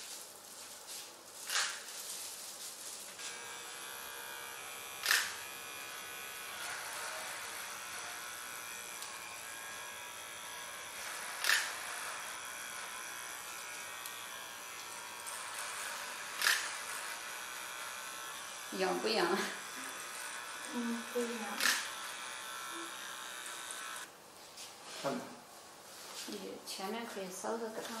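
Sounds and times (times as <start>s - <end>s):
electric hair clipper buzzing: 1.4s - 1.8s, 3.2s - 24.1s.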